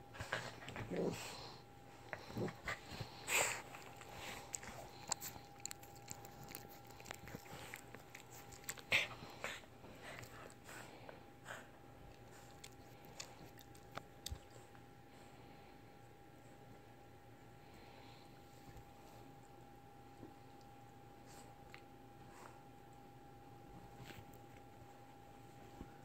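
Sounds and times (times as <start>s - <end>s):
dog nibbling a hand: 3.7s - 8.9s.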